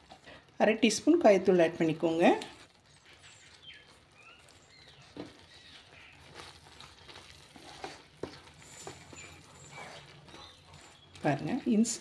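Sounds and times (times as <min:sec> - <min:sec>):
wooden spatula scraping a pan: 0:04.4 - 0:12.0.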